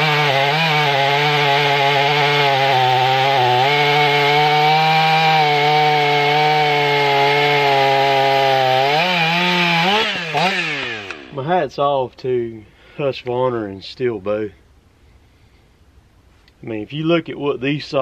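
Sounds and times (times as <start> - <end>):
chainsaw cutting wood: 0.0 - 11.4.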